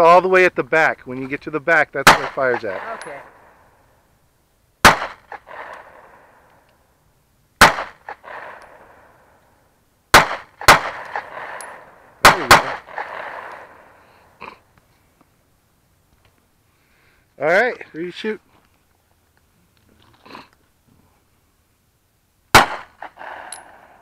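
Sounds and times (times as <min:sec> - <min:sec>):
pistol shots with echo: 0:02.0 - 0:03.3, 0:04.8 - 0:06.2, 0:07.6 - 0:09.0, 0:10.1 - 0:13.9, 0:22.5 - 0:23.8.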